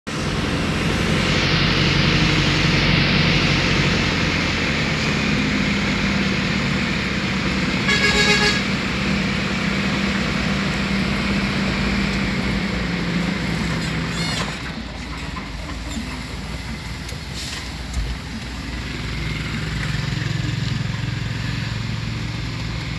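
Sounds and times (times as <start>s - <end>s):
vehicle engine running: 0.0s - 22.9s
tyre and road noise: 0.1s - 22.9s
vehicle horn toot: 7.8s - 8.8s.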